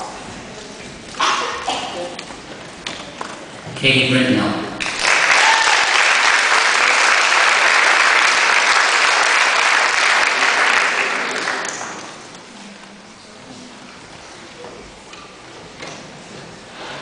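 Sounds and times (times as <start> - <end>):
audience applauding: 4.8 - 12.4.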